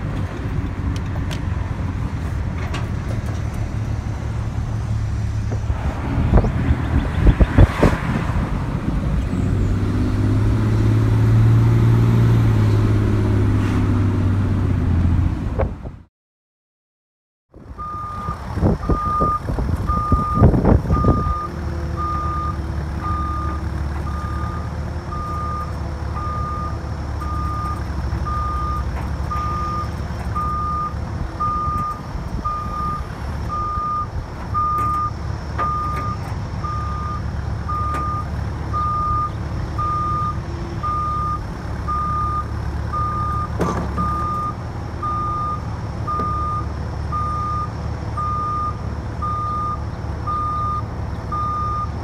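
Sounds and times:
excavator diesel engine running: 0:17.6 - 0:52.0
backup alarm beeping: 0:17.8 - 0:51.9
knocks and clatter: 0:43.5 - 0:44.4.

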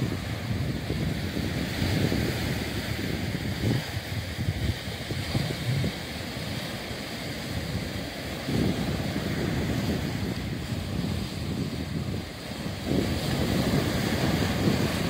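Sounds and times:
sea waves washing over rocks: 0:00.0 - 0:15.0
wind buffeting microphone: 0:00.0 - 0:15.0.

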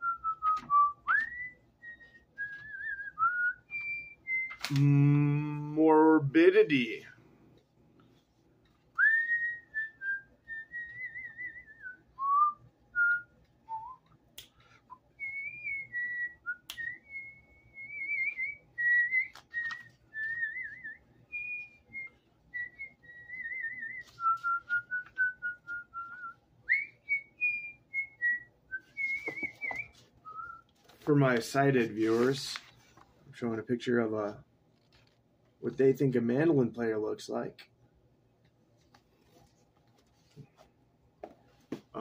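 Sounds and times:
person whistling a tune: 0:00.0 - 0:05.6, 0:09.0 - 0:14.1, 0:14.9 - 0:30.7.

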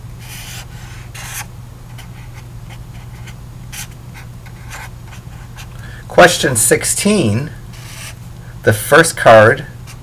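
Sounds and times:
steady low hum: 0:00.0 - 0:10.0
marker pen scratching on paper: 0:00.2 - 0:05.7, 0:07.8 - 0:08.2.

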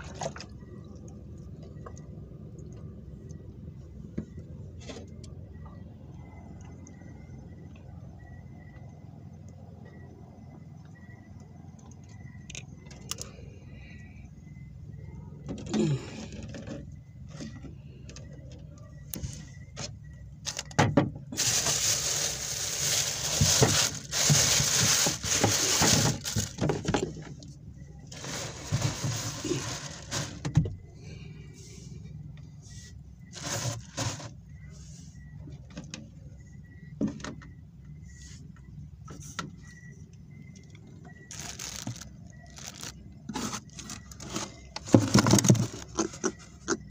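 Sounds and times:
steady low hum: 0:00.0 - 0:20.4
handling rustling and knocks: 0:20.5 - 0:27.4, 0:41.3 - 0:46.9.

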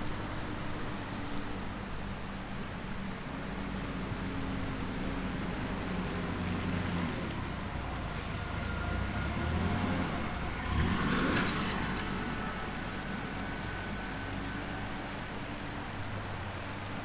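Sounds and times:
vehicle driving past slowly: 0:04.0 - 0:16.2.

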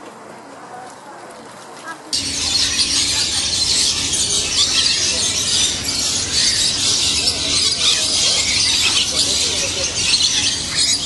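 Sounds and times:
birds chattering: 0:02.2 - 0:11.0.

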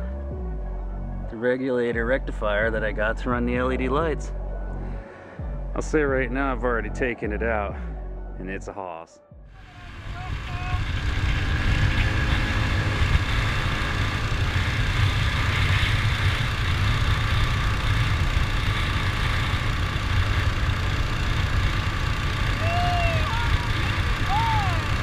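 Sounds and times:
mini bike engine rumbling: 0:09.6 - 0:25.0.

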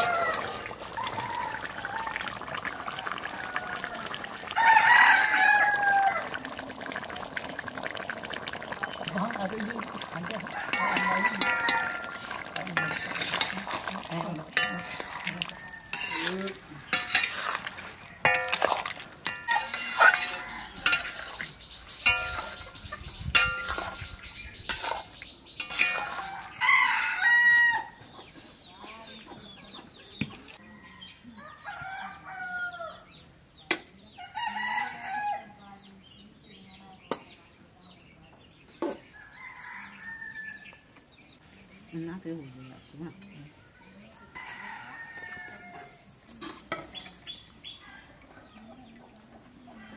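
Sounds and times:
rooster crowing: 0:00.0 - 0:06.4, 0:10.5 - 0:12.4, 0:19.4 - 0:21.2, 0:25.9 - 0:28.0, 0:30.6 - 0:33.0, 0:34.3 - 0:35.5, 0:44.3 - 0:45.9
metal spatula scraping a pan: 0:10.7 - 0:26.6, 0:46.3 - 0:46.9
chickens clucking: 0:28.0 - 0:30.6.

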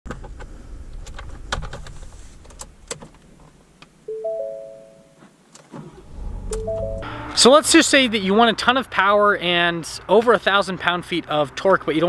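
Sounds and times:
rising three-note chime: 0:04.1 - 0:05.2, 0:06.2 - 0:07.5
low rumble: 0:06.0 - 0:07.5.

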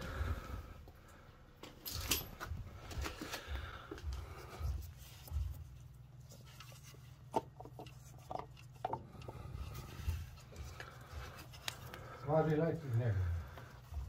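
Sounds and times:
low steady hum: 0:00.0 - 0:14.0
parts knocking and clicking: 0:06.4 - 0:12.0.

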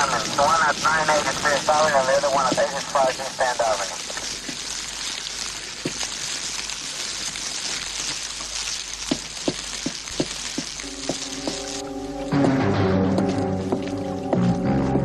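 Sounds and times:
fire crackling: 0:00.0 - 0:15.0
fire popping: 0:00.0 - 0:15.0
low held musical chord: 0:10.8 - 0:15.0.

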